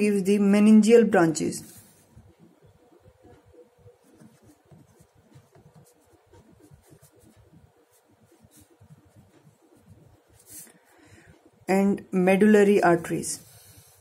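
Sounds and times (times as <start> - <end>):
pen scratching on paper: 1.7 - 10.9.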